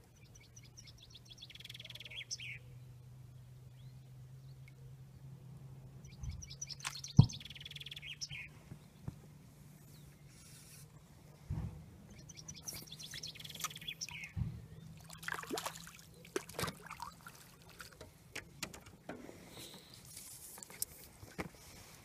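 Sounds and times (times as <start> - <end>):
birds chirping: 0.1 - 5.3, 6.0 - 10.8, 12.0 - 20.0
water dripping off net: 15.0 - 18.0
fish splashing: 15.0 - 18.1.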